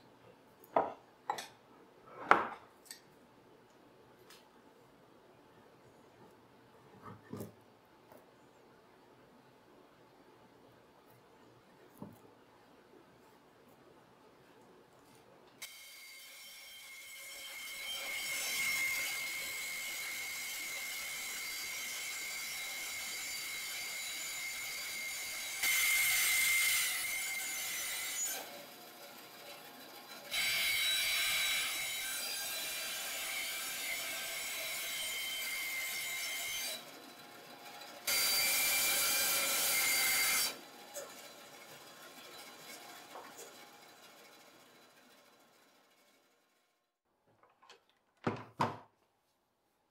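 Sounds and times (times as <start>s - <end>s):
saw blade cutting wood: 15.6s - 44.8s
band saw whining: 15.6s - 46.3s.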